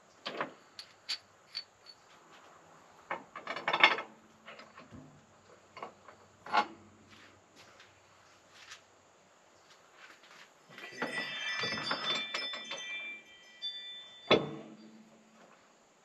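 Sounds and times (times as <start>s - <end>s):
metallic clicks of bolts: 0.2s - 2.0s
metal hardware scraping: 0.8s - 2.1s.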